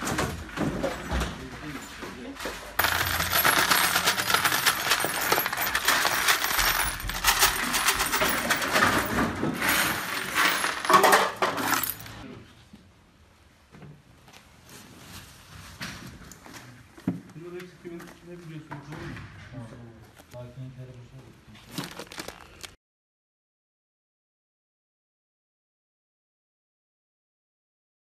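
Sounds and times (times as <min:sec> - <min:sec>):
small metal parts clattering: 0:02.7 - 0:12.2.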